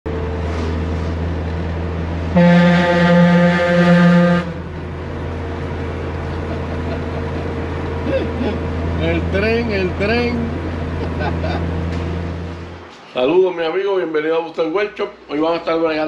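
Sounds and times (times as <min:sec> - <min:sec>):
car driving drone: 0:00.1 - 0:12.9
multi-tone air horn blast: 0:02.3 - 0:04.7.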